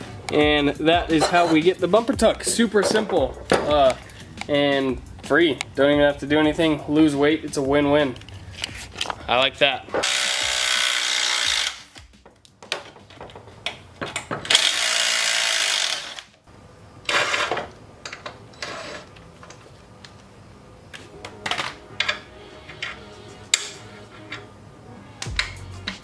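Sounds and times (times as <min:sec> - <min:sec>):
steel brackets and nuts clinking: 0:00.8 - 0:04.9
power tool bursts on bolts: 0:10.0 - 0:11.9, 0:14.5 - 0:16.3.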